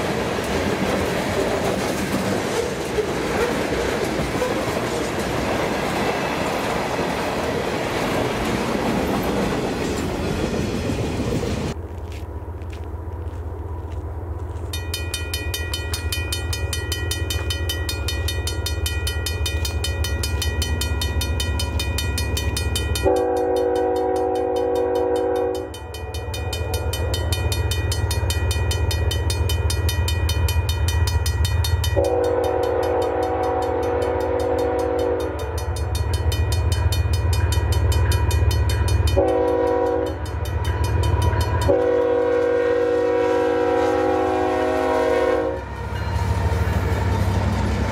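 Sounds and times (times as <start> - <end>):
diesel locomotive rumble: 0.0 - 47.9
locomotive air horn blasts: 23.0 - 25.8, 32.0 - 35.6, 39.1 - 40.2, 41.6 - 45.7.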